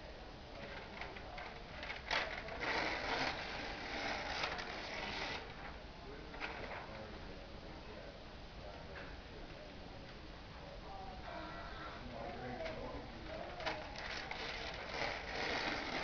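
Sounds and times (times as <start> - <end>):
paper crackling and rustling: 0.6 - 5.6, 12.4 - 16.0.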